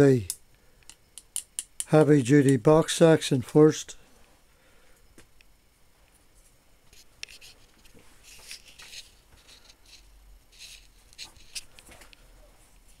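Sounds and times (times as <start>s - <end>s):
rustling handling noise: 6.1s - 13.0s.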